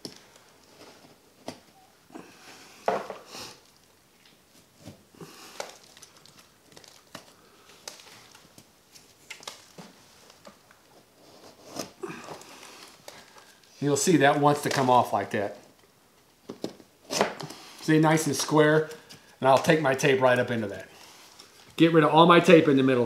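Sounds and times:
paper tape crinkling and tearing: 5.4 - 13.6.

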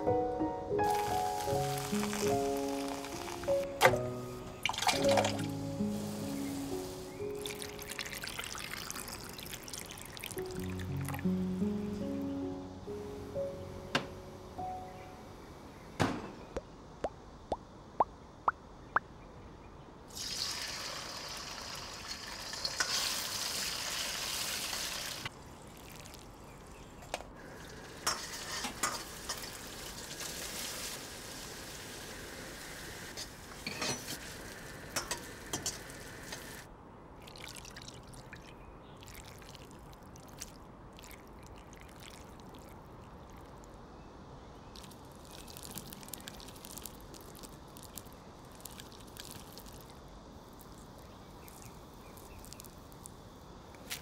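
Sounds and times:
oil sizzling in a wok: 0.8 - 3.5, 5.0 - 10.5, 20.1 - 25.3, 27.4 - 36.7
metal spatula scraping a wok: 28.1 - 29.0.

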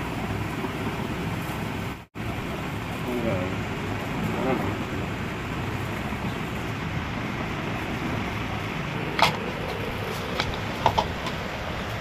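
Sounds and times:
steady background hum: 0.0 - 12.0
ceiling fan parts clicking: 2.6 - 12.0.

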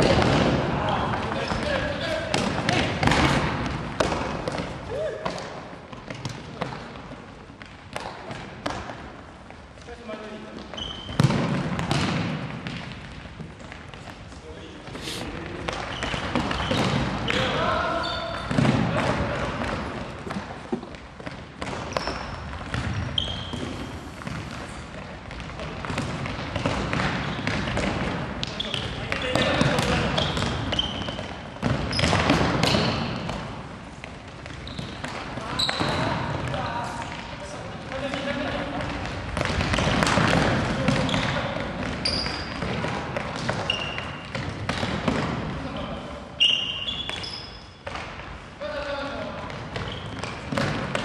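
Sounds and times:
sneaker squeaks: 10.4 - 12.8, 14.0 - 18.8, 20.8 - 33.4, 34.4 - 37.5, 40.8 - 48.0, 49.5 - 51.0
ball kicks and thuds: 11.2 - 12.8.

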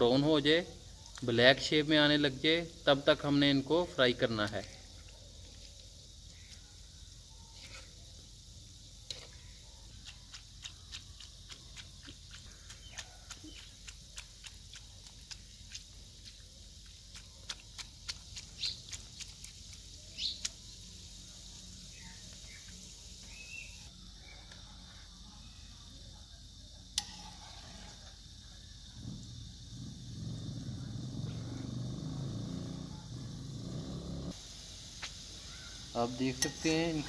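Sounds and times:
dough balls deep-frying: 0.0 - 24.1, 26.4 - 29.6, 34.1 - 37.0
oil popping and crackling: 9.9 - 20.8.

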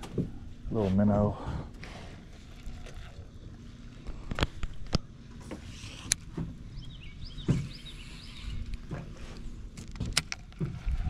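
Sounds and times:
fishing rod and reel clicks: 5.7 - 6.3, 9.8 - 11.0.

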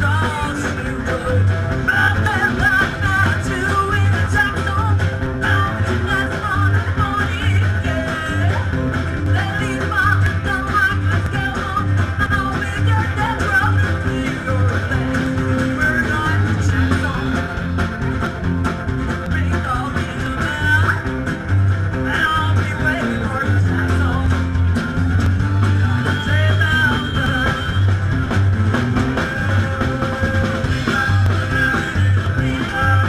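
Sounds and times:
bouncing bass line: 0.0 - 33.0
live rock and roll band: 0.0 - 33.0
woman singing: 9.3 - 17.4.

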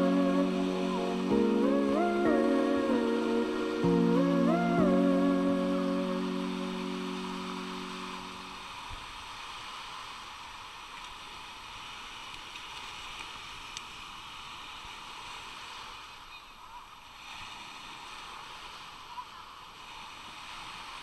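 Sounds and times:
background music: 0.0 - 8.6
waves washing on a beach: 0.0 - 21.0.

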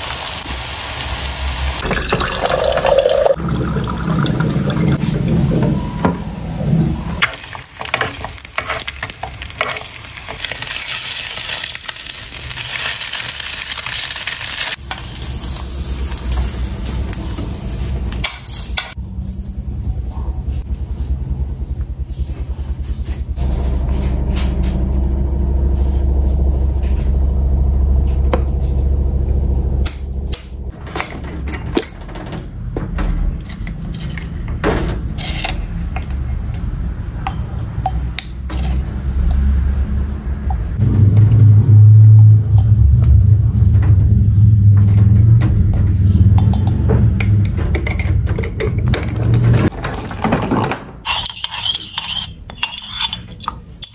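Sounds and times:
steady low hum: 14.8 - 49.7.

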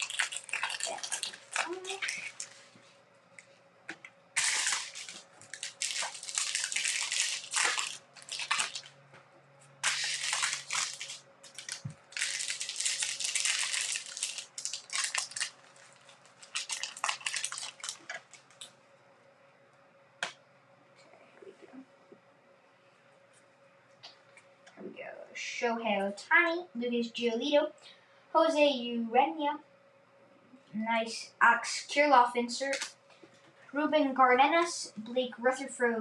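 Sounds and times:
wrappers torn and crinkled: 0.0 - 2.7, 4.4 - 9.0, 9.8 - 18.7.

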